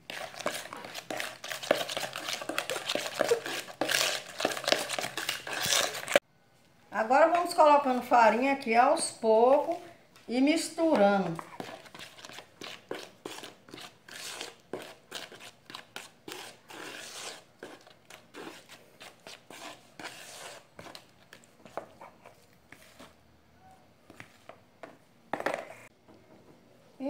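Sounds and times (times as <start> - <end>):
fork scraping plastic bowl: 0.0 - 6.2, 10.8 - 23.2.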